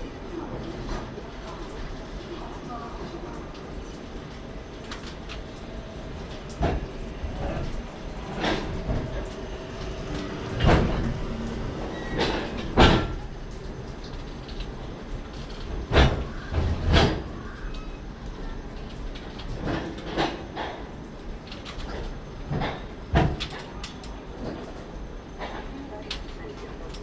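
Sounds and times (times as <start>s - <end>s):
low train rumble: 0.0s - 27.0s
train wheels clunking: 4.9s - 18.0s, 18.8s - 26.3s.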